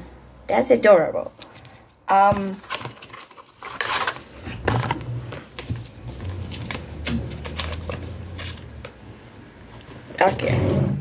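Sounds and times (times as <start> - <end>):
paper rustling: 1.4 - 8.9.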